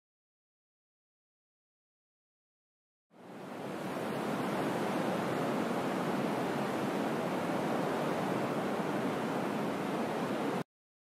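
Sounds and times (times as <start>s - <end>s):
ocean surf on beach: 3.1s - 10.6s.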